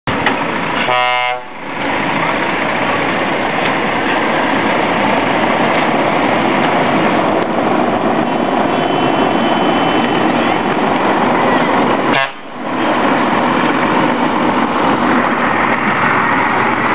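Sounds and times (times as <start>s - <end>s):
heavy trucks driving past: 0.1s - 16.9s
truck air horn blast: 0.8s - 1.6s, 12.1s - 12.5s.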